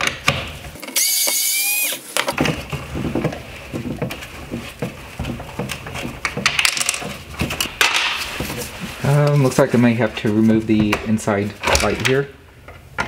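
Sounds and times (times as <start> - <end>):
screwdriver squeaking rasp: 1.0 - 2.0.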